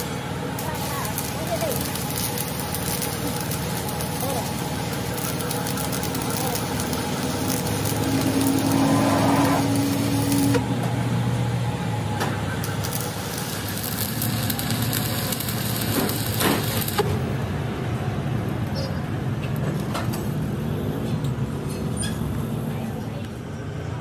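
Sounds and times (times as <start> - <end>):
electric arc welding crackling hiss: 0.0 - 10.7, 12.6 - 17.1.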